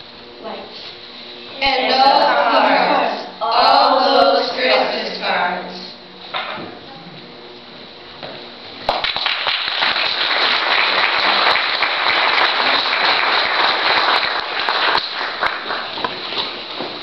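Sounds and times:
audience applauding: 8.9s - 16.2s.

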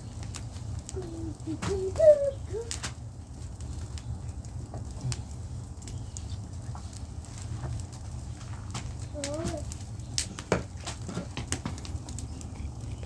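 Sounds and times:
wood fire crackling and popping: 0.0s - 13.0s.

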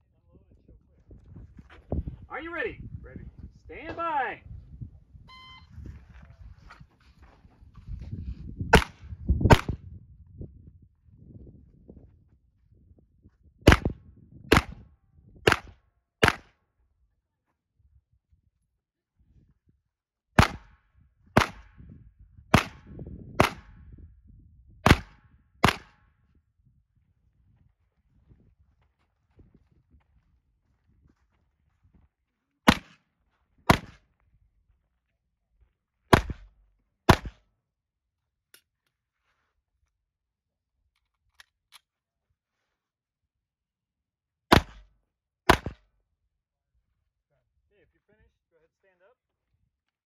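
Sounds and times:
pistol shots with echo: 8.7s - 9.7s, 13.7s - 13.9s, 14.5s - 14.8s, 15.5s - 16.5s, 20.4s - 20.8s, 21.4s - 21.7s, 22.5s - 23.8s, 24.8s - 26.0s, 37.1s - 37.4s.

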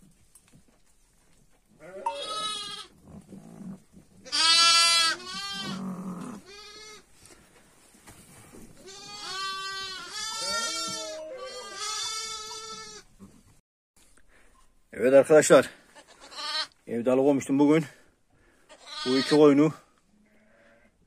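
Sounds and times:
sheep and lambs bleating: 1.8s - 3.0s, 4.2s - 7.1s, 8.8s - 13.2s, 15.9s - 16.8s, 18.7s - 19.6s, 20.2s - 21.0s.

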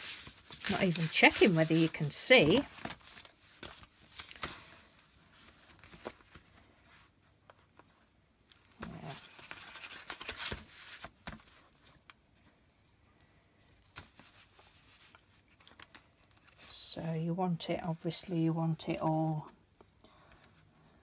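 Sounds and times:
paper sliding and rustling: 0.0s - 7.9s, 8.6s - 12.5s.

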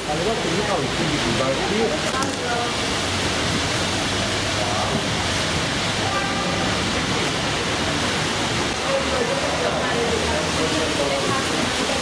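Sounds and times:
steady rushing noise: 0.0s - 12.0s
faint indistinct voices: 3.8s - 12.0s.

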